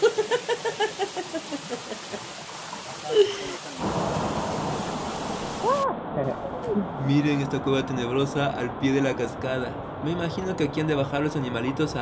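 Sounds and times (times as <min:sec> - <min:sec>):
waterfall roaring: 0:00.0 - 0:08.0.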